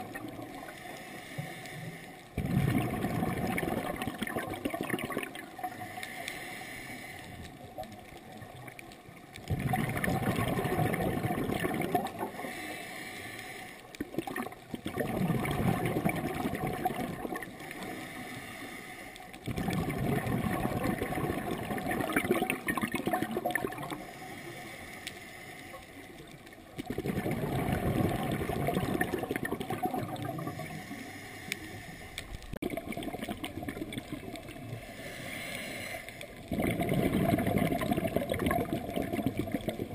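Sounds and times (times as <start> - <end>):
exhaled bubbles gurgling: 0.0 - 0.8, 2.3 - 6.1, 7.4 - 12.8, 13.9 - 18.2, 19.3 - 24.3, 26.2 - 31.0, 32.2 - 35.6, 36.2 - 39.9
regulator inhalation hiss: 0.6 - 2.2, 5.7 - 7.4, 12.3 - 13.9, 17.7 - 19.3, 23.9 - 26.2, 30.4 - 32.4, 34.7 - 36.4.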